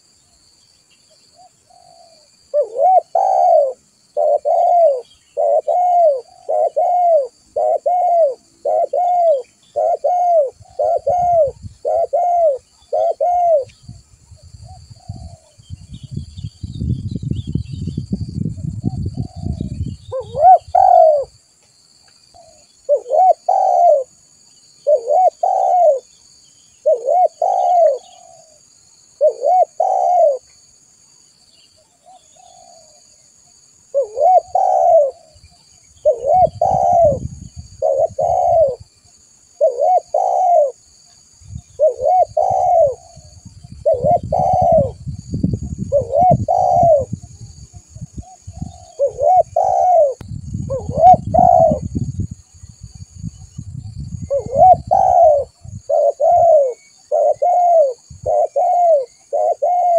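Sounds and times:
dove cooing: 1.4 - 13.7, 14.7 - 15.6, 18.9 - 21.4, 22.3 - 24.2, 24.8 - 26.1, 26.8 - 28.6, 29.2 - 30.5, 32.0 - 33.0, 33.9 - 38.9, 39.6 - 40.8, 41.7 - 51.9, 54.2 - 59.9.

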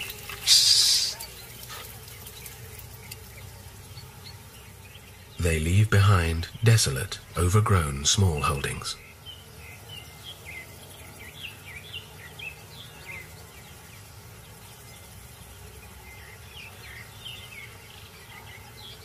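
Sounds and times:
high falling chirps: 0.0 - 1.6
low background hum: 0.0 - 19.0.

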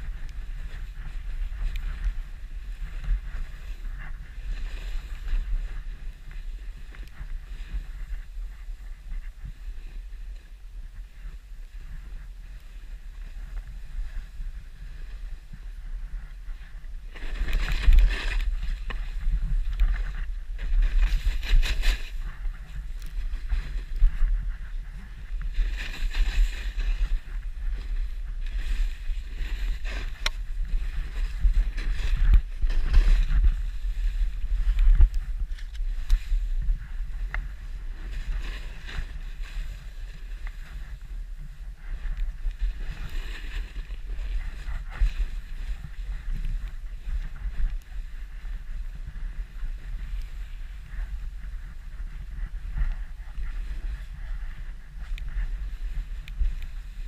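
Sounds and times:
wind rumbling on microphone: 0.0 - 57.0
skis hissing through snow: 0.4 - 48.2.

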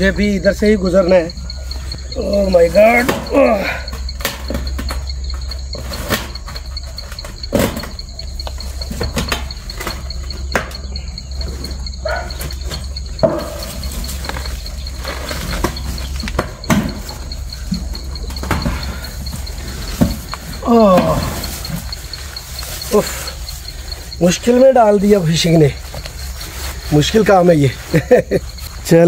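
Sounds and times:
insects trilling: 0.0 - 29.0
knocks and rustles in grass: 21.4 - 28.9.

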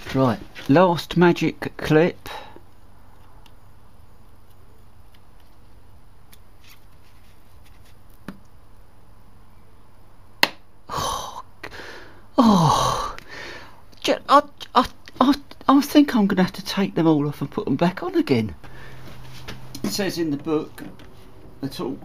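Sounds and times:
quiet working sounds: 12.6 - 22.0.

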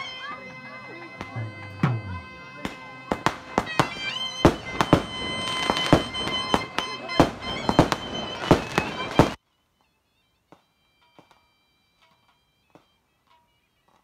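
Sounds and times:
bagpipe drone and melody: 0.0 - 9.4
dhol drum strokes: 1.0 - 9.4.

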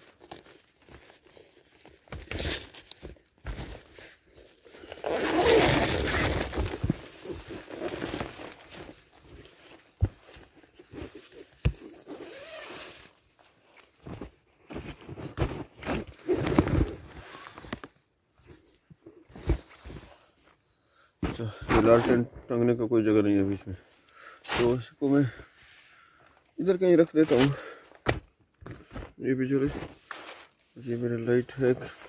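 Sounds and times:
tent fabric and clothing rustling: 0.0 - 22.4, 24.4 - 26.0, 26.7 - 32.0.

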